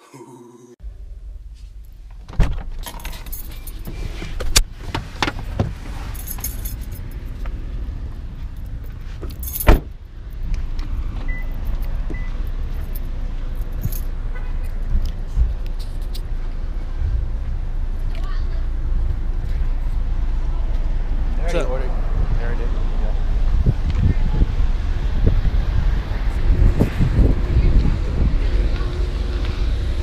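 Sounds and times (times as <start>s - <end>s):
car engine rumble: 0.8s - 30.0s
car keys jangling: 1.8s - 4.6s, 5.3s - 7.5s, 8.4s - 10.4s, 11.3s - 16.3s.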